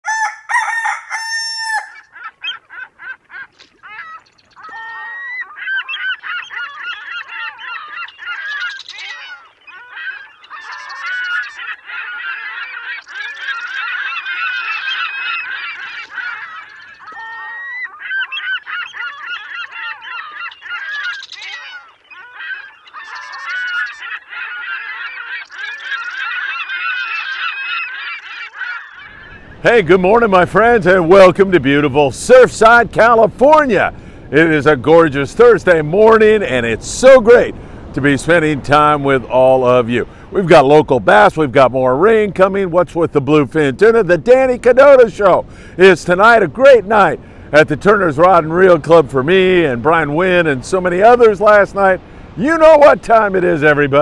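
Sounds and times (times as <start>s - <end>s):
long pitched bird call: 0.0s - 30.2s
flock of birds calling: 0.0s - 40.9s, 41.9s - 54.0s.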